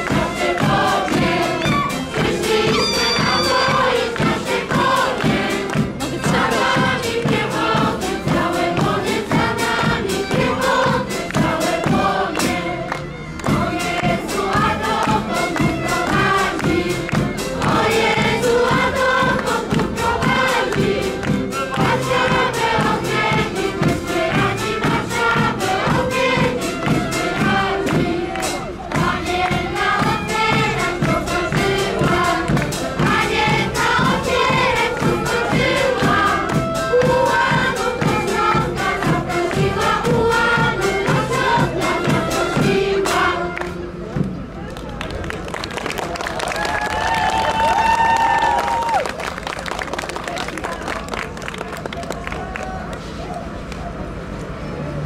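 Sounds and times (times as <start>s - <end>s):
girls choir singing folk song: 0.0s - 44.0s.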